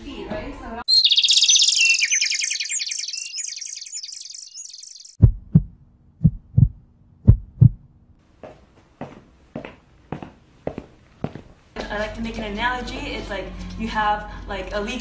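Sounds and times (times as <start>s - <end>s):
high fluttering chirp: 0.9s - 5.2s
deep double thumps: 5.2s - 8.0s.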